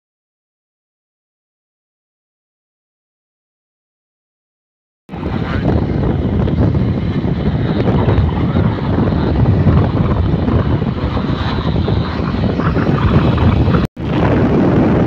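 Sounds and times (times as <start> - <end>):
road and engine noise: 5.1 - 15.0
wind buffeting microphone: 5.1 - 15.0.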